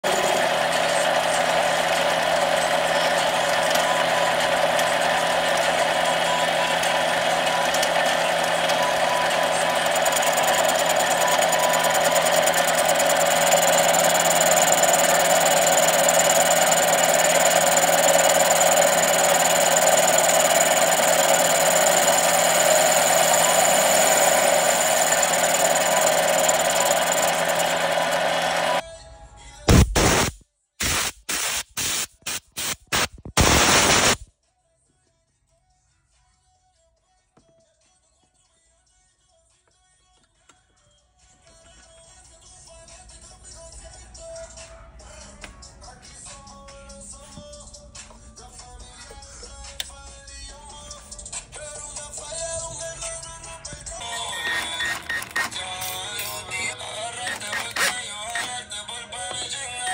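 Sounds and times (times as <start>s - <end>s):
high steady whine: 0.0s - 28.8s, 29.7s - 34.2s
metal lathe running: 0.0s - 28.8s, 54.0s - 58.6s.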